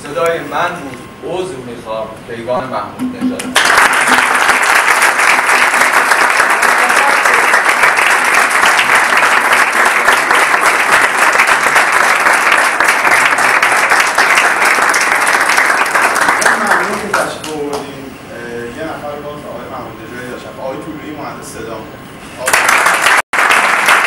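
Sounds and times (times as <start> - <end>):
audience applauding: 3.4 - 17.9, 22.4 - 24.0.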